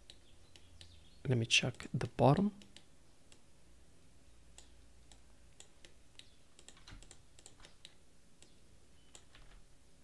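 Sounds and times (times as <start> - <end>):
computer mouse clicks: 0.0 - 1.0, 2.6 - 3.5, 4.5 - 9.6.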